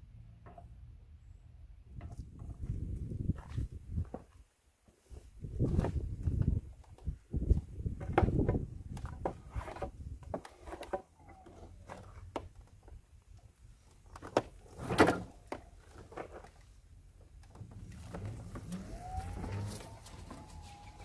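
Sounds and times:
electric motor whine: 17.6s - 21.0s.

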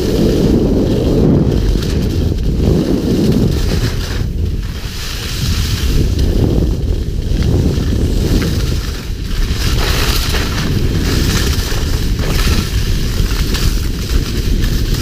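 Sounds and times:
wind buffeting microphone: 0.0s - 15.0s
skis hissing on snow: 2.9s - 6.2s, 8.1s - 15.0s.

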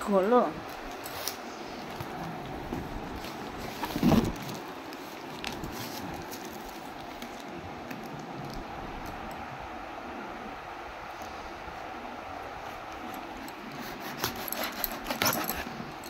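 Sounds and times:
steady background hiss: 0.0s - 16.0s
scraping and light rustling: 0.8s - 7.4s
knife slitting packing tape: 13.8s - 15.8s.

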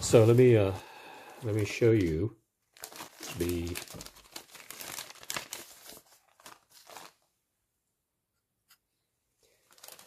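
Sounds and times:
plastic bags crinkling: 1.5s - 7.3s, 9.5s - 10.0s.

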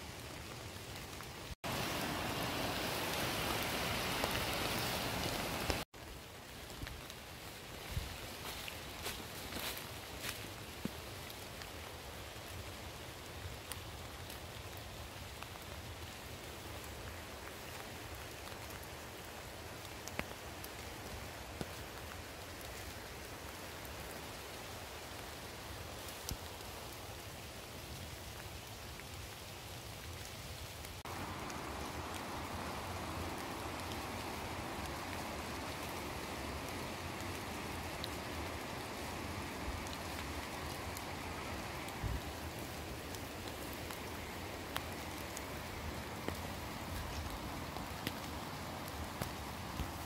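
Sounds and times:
rain falling on leaves: 0.0s - 50.0s.

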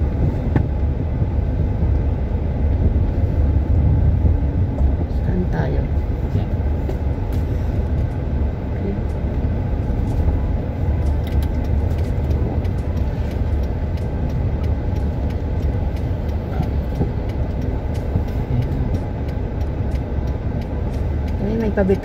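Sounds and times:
car engine and tyre rumble: 0.0s - 22.0s.

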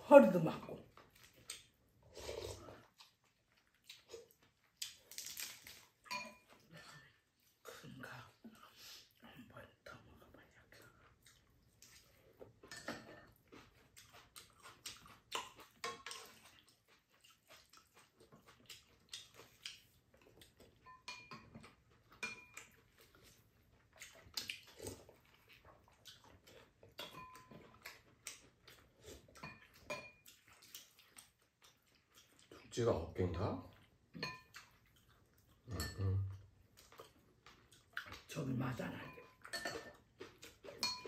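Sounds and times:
chewing and mouth sounds: 0.8s - 32.8s, 33.4s - 41.0s
utensils clinking on bowls: 6.1s - 6.6s, 20.8s - 22.7s, 27.0s - 27.6s, 34.2s - 34.5s, 35.7s - 36.3s, 39.0s - 40.0s, 40.7s - 41.0s.

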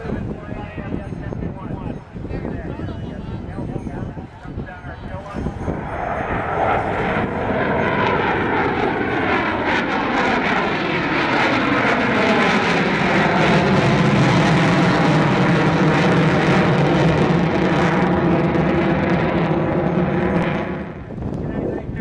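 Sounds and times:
jet flying past: 5.0s - 22.0s.

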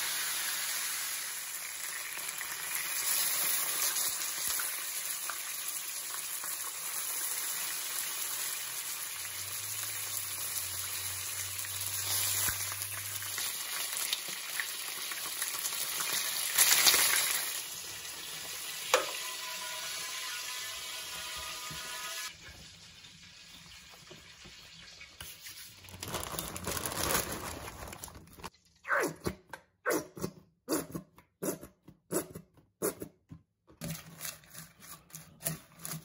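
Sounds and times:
chicken sizzling in oil: 0.0s - 26.0s.

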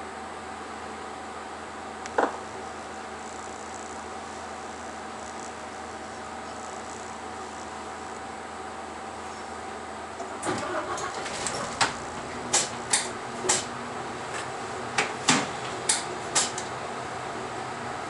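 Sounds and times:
bus engine idling hum: 7.2s - 18.0s.

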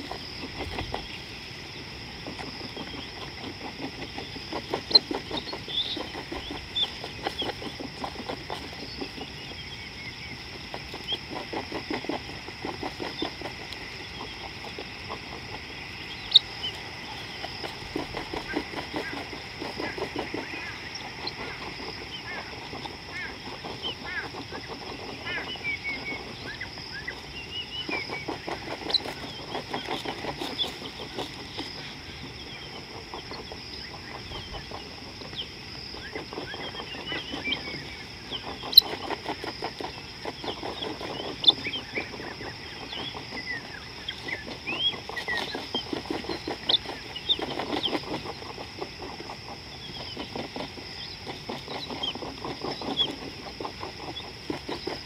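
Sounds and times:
birds chirping: 0.0s - 55.0s
rapid low pulsed bird calls: 0.0s - 55.0s
steady high-pitched whine: 0.0s - 55.0s.

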